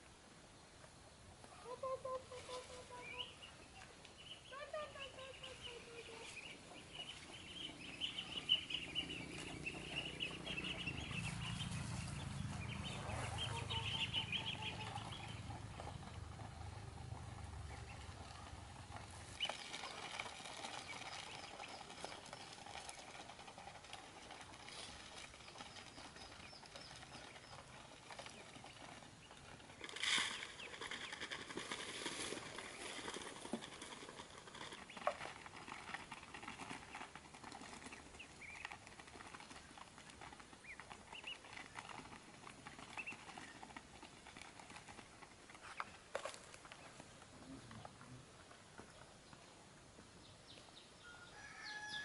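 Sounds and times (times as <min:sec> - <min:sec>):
chicks peeping: 0:01.7 - 0:23.5, 0:34.6 - 0:43.8.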